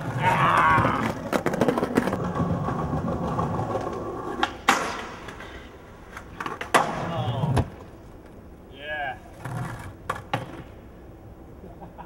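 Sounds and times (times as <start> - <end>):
skateboard cracking on ollie: 0.0 - 7.9
skateboard wheels rolling on paving: 0.0 - 8.6, 9.2 - 11.0.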